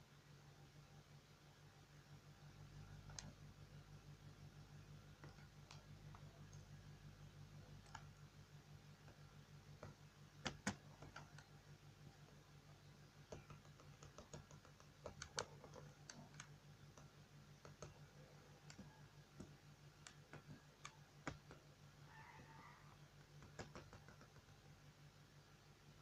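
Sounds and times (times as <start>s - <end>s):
low steady hum: 0.0s - 26.0s
computer mouse clicks: 2.9s - 3.5s, 5.2s - 6.8s, 7.7s - 8.2s, 8.9s - 12.4s, 13.2s - 21.7s, 22.9s - 24.7s.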